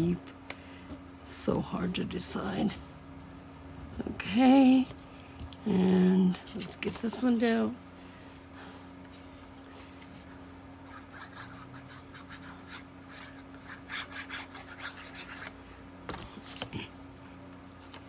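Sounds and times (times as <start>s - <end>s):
glue stick scratching on paper: 10.9s - 15.5s.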